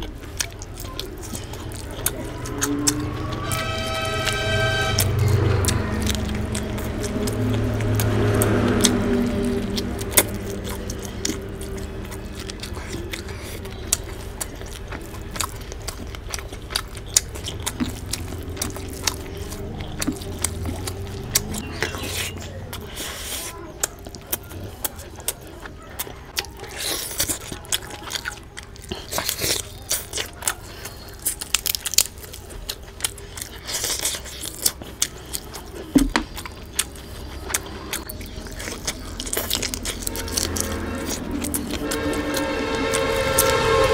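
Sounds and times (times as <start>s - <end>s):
low steady hum: 0.0s - 22.9s, 29.6s - 43.9s
wet mouth clicks and chewing: 0.0s - 42.5s.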